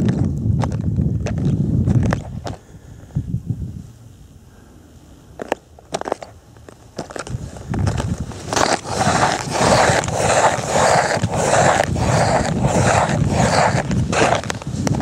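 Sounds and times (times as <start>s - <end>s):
snowshoe footsteps crunching snow: 5.4s - 15.0s.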